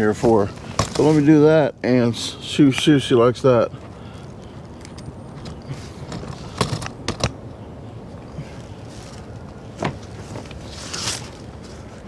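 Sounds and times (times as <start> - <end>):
short rustle: 8.4 - 12.0.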